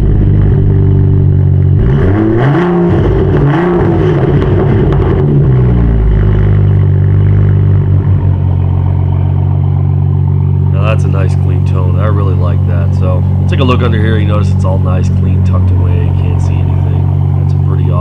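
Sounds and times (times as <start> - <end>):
car engine idling and revving: 0.0 - 18.0.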